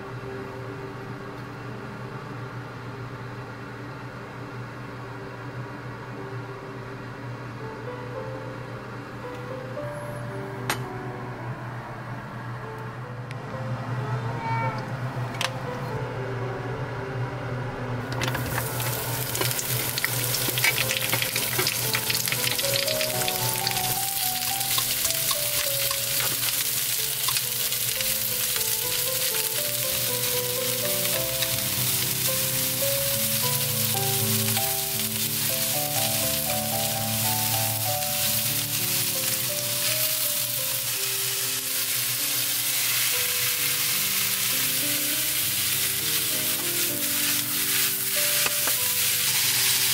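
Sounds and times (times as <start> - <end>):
background music: 15.1 - 49.9
vegetables sizzling in frying pan: 18.2 - 49.9.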